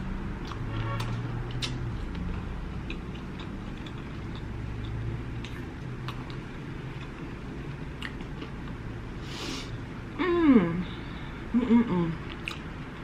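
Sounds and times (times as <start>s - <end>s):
person chewing: 0.4s - 9.5s, 12.2s - 13.0s
person sniffing: 9.2s - 9.8s.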